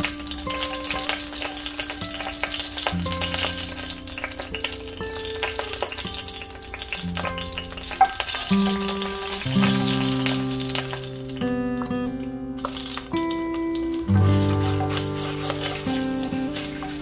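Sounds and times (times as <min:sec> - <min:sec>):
leaves spitting in hot oil: 0:00.0 - 0:17.0
seeds sizzling in hot oil: 0:00.0 - 0:17.0
wooden spoon stirring pot: 0:13.9 - 0:17.0.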